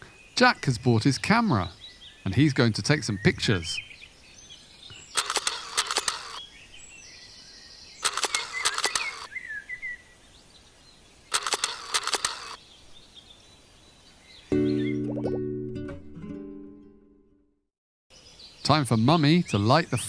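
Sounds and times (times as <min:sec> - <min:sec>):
birds chirping: 0:00.0 - 0:15.4, 0:18.1 - 0:20.0
camera shutter clicks: 0:05.1 - 0:06.4, 0:08.0 - 0:09.3, 0:11.3 - 0:12.6.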